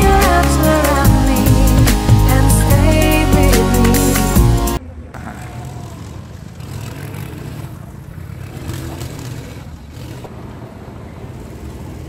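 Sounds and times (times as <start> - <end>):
go-kart engine running: 4.8 - 12.0.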